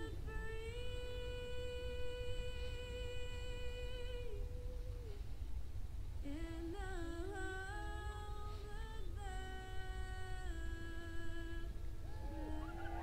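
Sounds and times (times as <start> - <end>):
person humming a slow tune: 0.0 - 5.5, 6.2 - 13.0
low rumble: 11.7 - 13.0.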